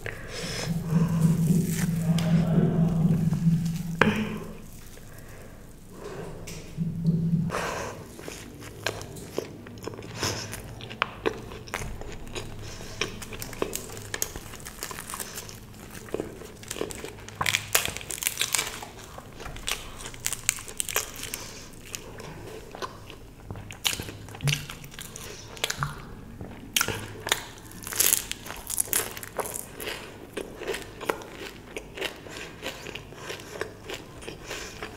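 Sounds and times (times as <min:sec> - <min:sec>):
chewing crunchy fried food: 0:08.2 - 0:34.9.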